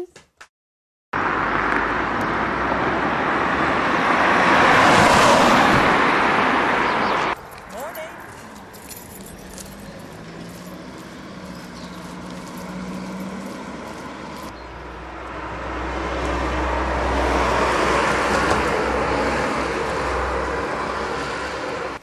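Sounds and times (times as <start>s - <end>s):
car driving past: 1.2s - 7.4s, 9.2s - 22.0s
car engine running: 7.8s - 14.5s.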